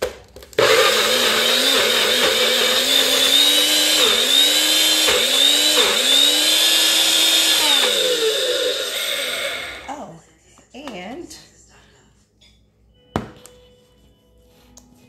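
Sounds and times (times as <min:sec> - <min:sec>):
blender motor whining: 0:00.6 - 0:09.9.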